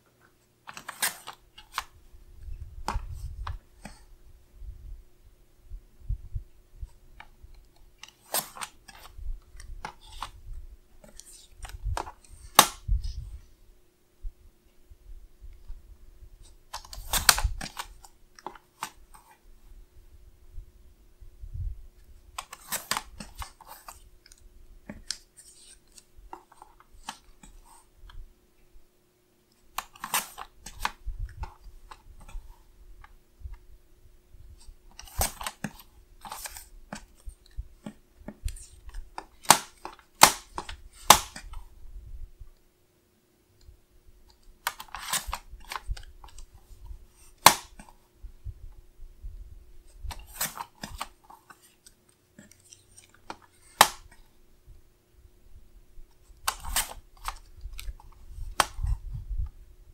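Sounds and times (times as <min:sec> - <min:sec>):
paper being handled: 0:00.6 - 0:02.0.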